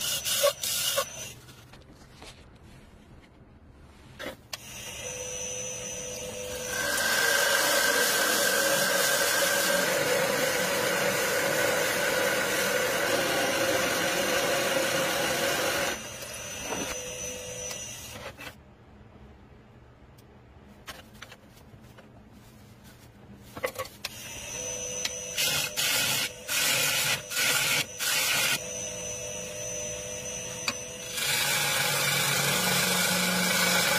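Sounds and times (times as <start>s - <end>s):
lathe motor whine: 4.6s - 18.3s, 24.1s - 33.9s.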